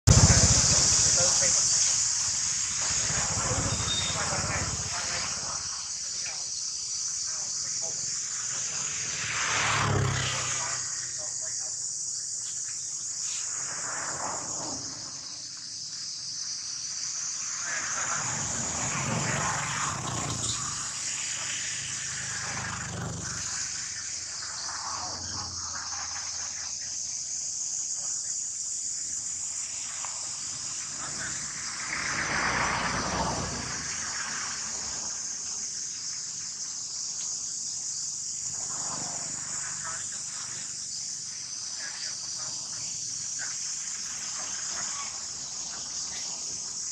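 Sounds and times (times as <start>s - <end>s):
rushes of noise: 0.0s - 11.5s, 13.0s - 15.5s, 16.8s - 26.9s, 29.1s - 36.6s
insects chorus: 0.0s - 46.9s.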